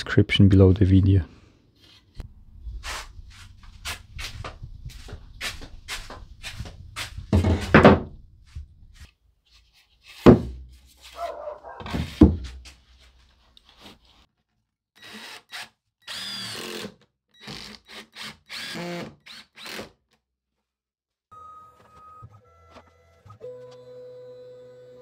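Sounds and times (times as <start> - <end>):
wooden board knocking: 7.3 - 8.2
cordless drill running: 15.0 - 19.8.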